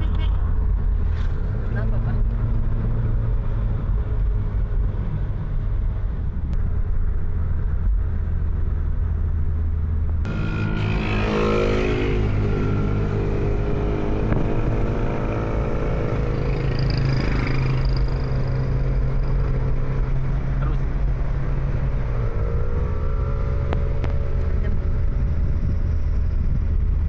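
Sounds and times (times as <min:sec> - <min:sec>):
car engine and tyre hum: 0:00.0 - 0:27.0
engine pitch gliding: 0:06.5 - 0:25.7.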